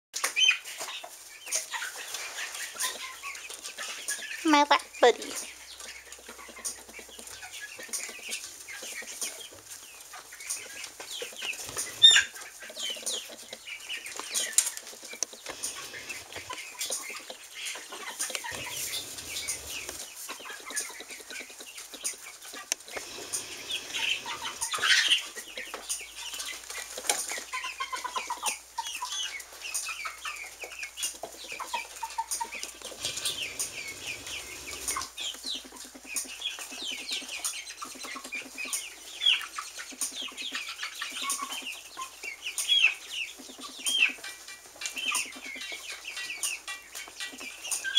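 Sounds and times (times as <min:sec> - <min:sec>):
young chickens chirping and clucking: 0:00.2 - 0:47.9
rustling: 0:05.2 - 0:28.1.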